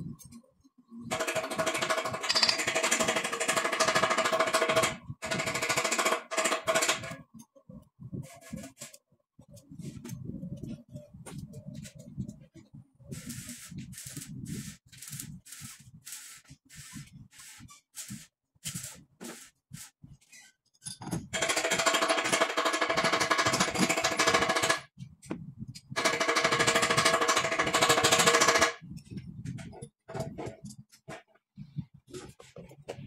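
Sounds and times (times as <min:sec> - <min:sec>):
pneumatic impact wrench hammering: 0:01.4 - 0:07.1.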